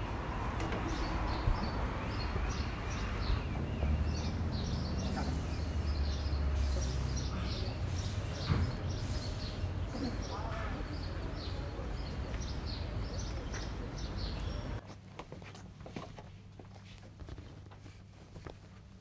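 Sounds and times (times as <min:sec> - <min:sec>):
small birds chirping: 0:00.6 - 0:14.8.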